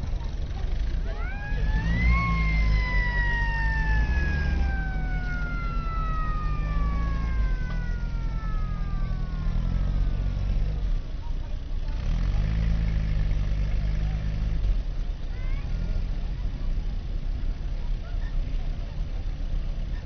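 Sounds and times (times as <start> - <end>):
low engine rumble: 0.0 - 20.0
mechanical siren wailing: 1.1 - 10.8.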